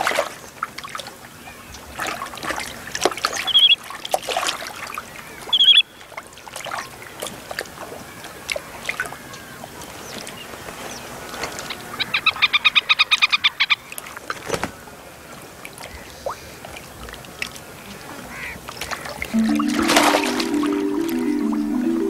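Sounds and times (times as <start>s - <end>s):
water splashing around a boat: 0.0s - 21.9s.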